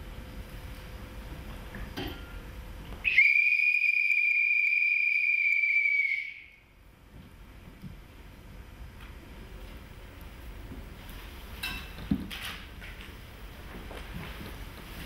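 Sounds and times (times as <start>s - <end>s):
high-pitched whistle tone: 3.1s - 6.6s.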